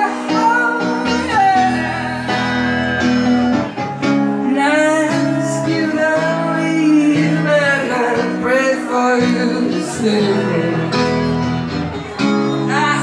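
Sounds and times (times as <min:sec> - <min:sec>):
strummed acoustic guitar: 0:00.0 - 0:13.0
man singing: 0:04.4 - 0:11.3.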